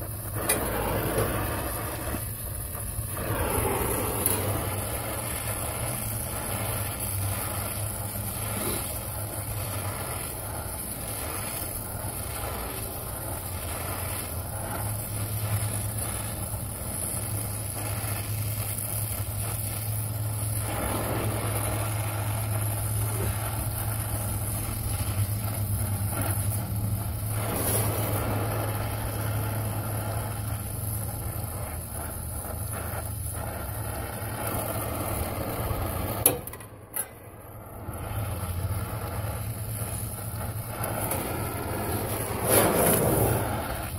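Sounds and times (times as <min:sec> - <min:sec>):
brazing torch flame hissing: 0:00.0 - 0:43.9
sharp pop: 0:00.3 - 0:01.4, 0:36.2 - 0:37.2.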